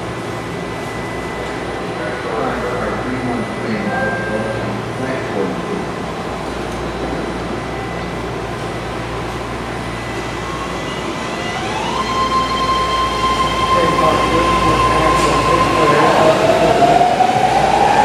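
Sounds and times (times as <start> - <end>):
high rising whine: 0.0 - 18.0
train rumble: 0.0 - 18.0.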